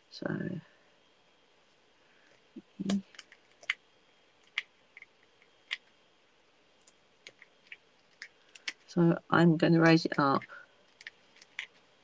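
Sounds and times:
small sharp paper clicks: 0:06.8 - 0:08.9, 0:10.8 - 0:11.9.

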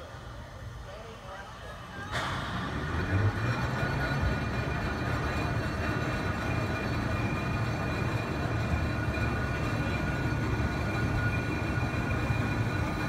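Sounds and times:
turntable low rumble: 0:01.9 - 0:13.0
faint high whine: 0:03.5 - 0:13.0.

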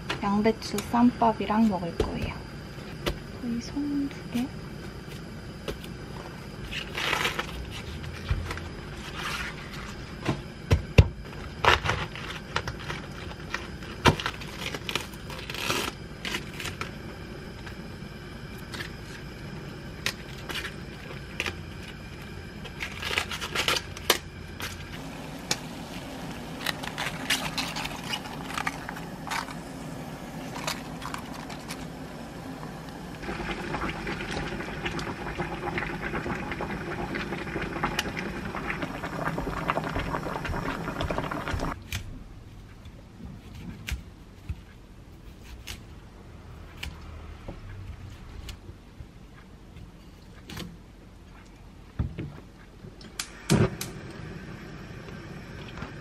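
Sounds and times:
gas burner hissing: 0:24.0 - 0:41.8, 0:53.1 - 0:56.0
cabbage leaves crackling and snapping: 0:25.4 - 0:29.7.

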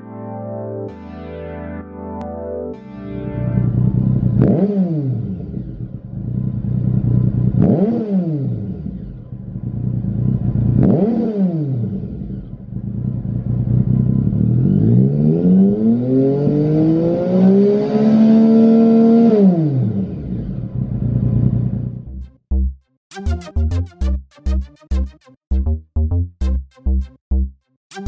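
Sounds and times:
motorcycle engine idling and revving: 0:03.6 - 0:22.7.

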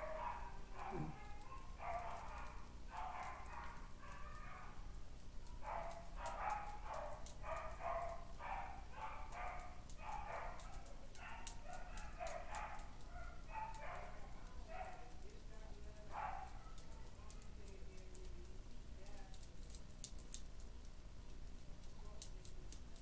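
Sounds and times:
small dog yapping: 0:00.0 - 0:04.8.

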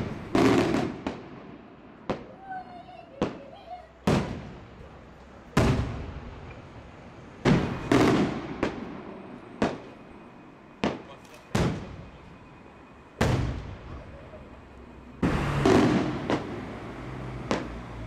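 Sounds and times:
rolling echo of bangs: 0:13.2 - 0:14.0, 0:15.2 - 0:16.7.

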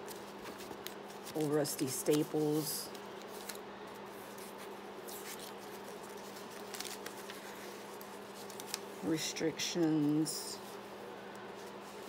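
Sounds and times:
paper rustling: 0:00.0 - 0:09.0
faint steady hum: 0:00.0 - 0:12.0.

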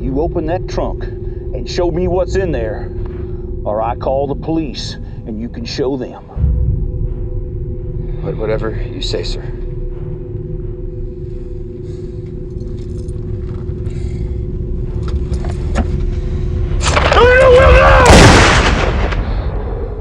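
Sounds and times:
low rumble: 0:00.0 - 0:20.0
person crying out: 0:17.1 - 0:18.3.

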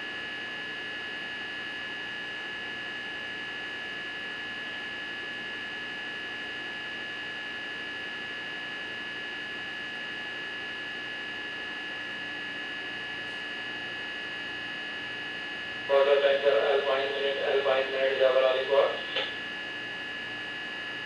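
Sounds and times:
steady hum: 0:13.0 - 0:21.0
high whine: 0:15.7 - 0:19.8.

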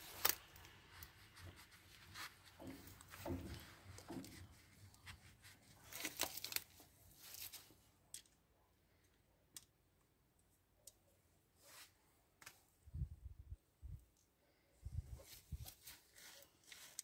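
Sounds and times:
rustling and scraping of wires: 0:00.0 - 0:08.4, 0:14.2 - 0:17.0.

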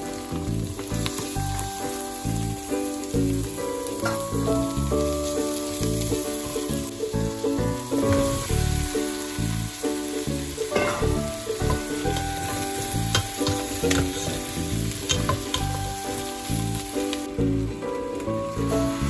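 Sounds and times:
soft background music: 0:00.0 - 0:19.0
vegetables sizzling in a pot: 0:00.0 - 0:19.0
metal utensil scraping a pot: 0:10.7 - 0:15.7.

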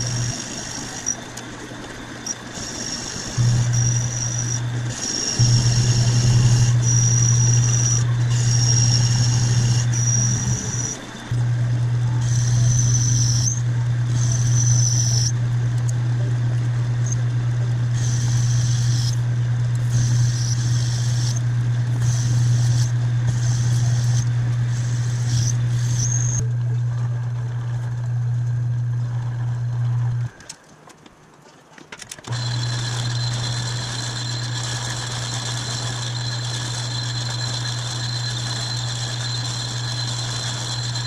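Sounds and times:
cutting tool hiss: 0:00.0 - 0:01.3, 0:02.2 - 0:11.4, 0:12.1 - 0:15.4, 0:18.0 - 0:19.2, 0:19.8 - 0:21.4, 0:22.0 - 0:26.4, 0:32.3 - 0:41.0
lathe motor hum: 0:00.0 - 0:30.4, 0:32.3 - 0:41.0.

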